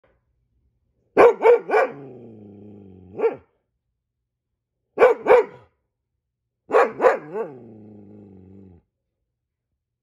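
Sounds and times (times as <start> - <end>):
dog barking: 1.1 - 2.1, 3.1 - 3.6, 5.0 - 5.8, 6.7 - 7.7
dog growling low: 2.0 - 3.2, 7.4 - 8.9.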